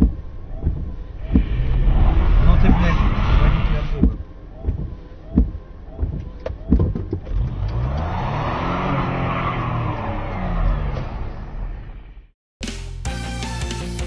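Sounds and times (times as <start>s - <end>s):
car engine revving: 0.0s - 12.3s
sharp knocks: 4.0s - 7.3s.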